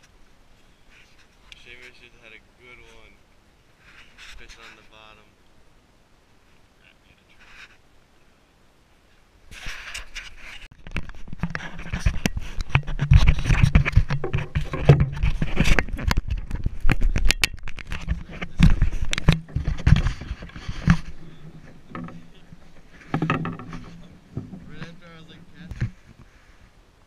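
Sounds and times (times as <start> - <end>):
gear knocking against boat hull: 12.7 - 25.0.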